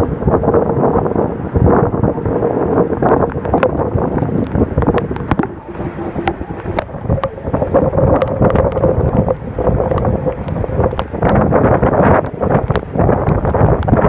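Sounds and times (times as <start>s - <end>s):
large waterfall roaring: 0.0s - 14.0s
wind buffeting microphone: 0.0s - 14.0s
steady hum: 1.9s - 12.4s.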